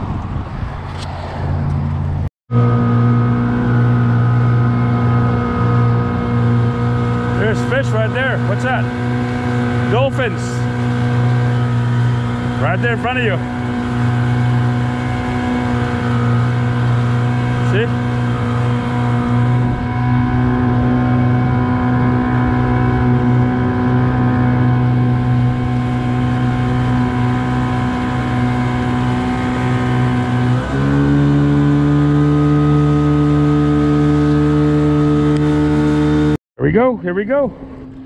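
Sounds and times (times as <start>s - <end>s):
outboard motor running: 1.7s - 38.0s.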